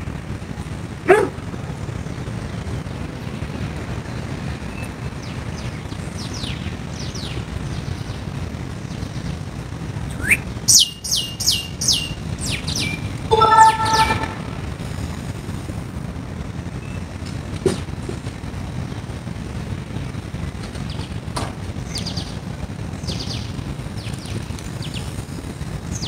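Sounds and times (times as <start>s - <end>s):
low background rumble: 0.0s - 26.0s
birds chirping: 2.7s - 9.4s, 10.0s - 14.6s, 20.0s - 26.0s.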